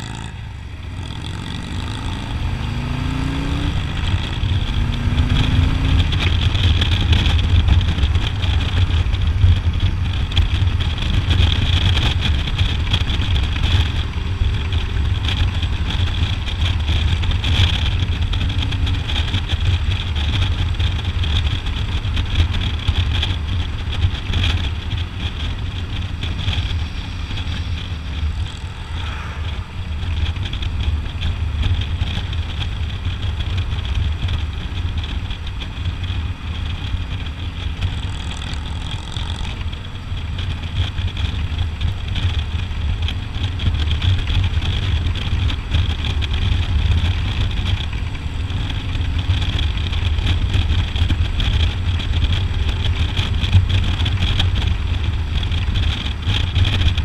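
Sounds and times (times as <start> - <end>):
motorcycle engine riding: 0.0 - 57.0
wind and road noise: 0.0 - 57.0.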